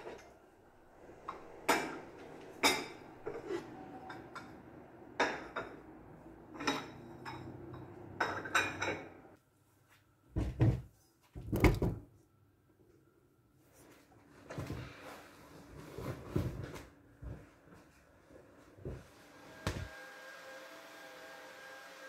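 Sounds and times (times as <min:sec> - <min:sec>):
dishes and utensils clattering: 0:01.2 - 0:09.3.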